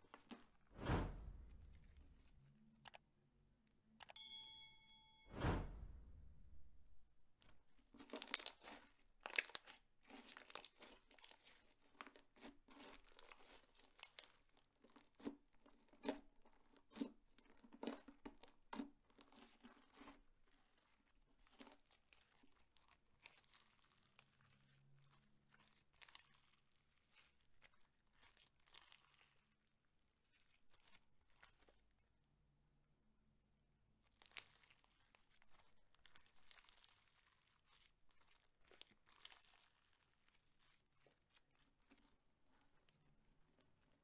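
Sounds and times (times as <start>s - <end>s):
slime squishing crackles: 7.4s - 32.0s, 34.0s - 44.0s.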